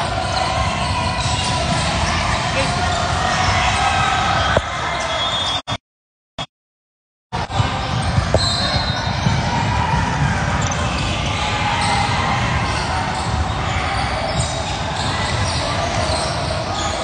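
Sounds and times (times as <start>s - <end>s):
voices echoing: 0.0s - 5.6s, 7.4s - 17.0s
basketball bouncing on court: 7.4s - 16.2s.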